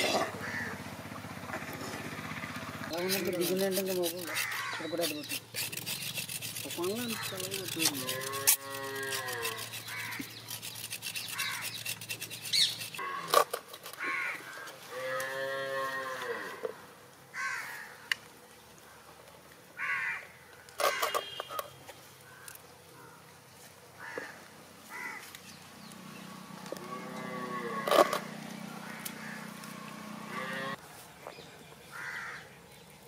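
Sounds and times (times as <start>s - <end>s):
cattle mooing: 8.0s - 9.6s, 14.9s - 16.7s, 26.7s - 28.3s, 30.0s - 30.8s.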